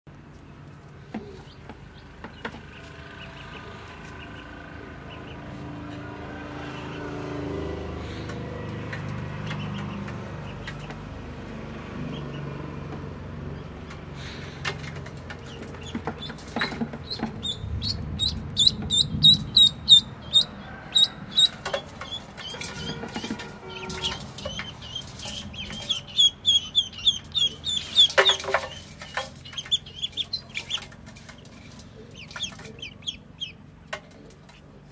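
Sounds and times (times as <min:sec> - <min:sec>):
ducklings peeping: 0:00.7 - 0:07.1, 0:08.0 - 0:12.7, 0:13.6 - 0:34.9
steady low hum: 0:15.2 - 0:34.9.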